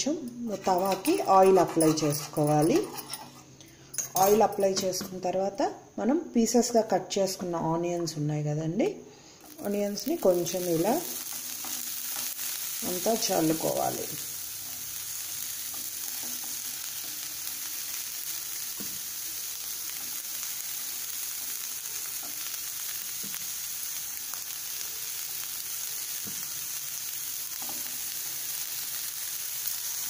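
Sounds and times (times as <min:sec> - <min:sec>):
onion sizzling in oil: 0:09.2 - 0:30.0.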